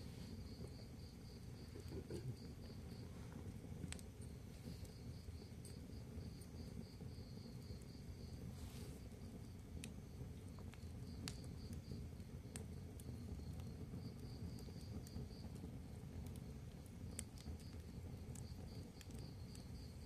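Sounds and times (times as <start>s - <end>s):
fire crackling and popping: 0.0s - 20.0s
low rumble of flames: 0.0s - 20.0s.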